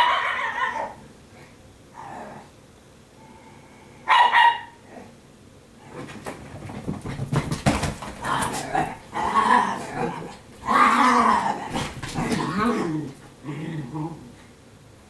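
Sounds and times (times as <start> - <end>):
dog yipping: 0.0 - 1.0, 4.1 - 4.8
dogs whining and grumbling: 0.0 - 1.1, 8.2 - 14.5.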